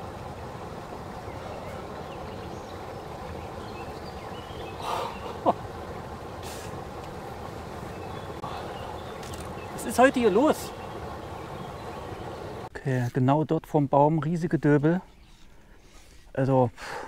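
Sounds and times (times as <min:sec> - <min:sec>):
brief hiss: 0:06.4 - 0:06.8.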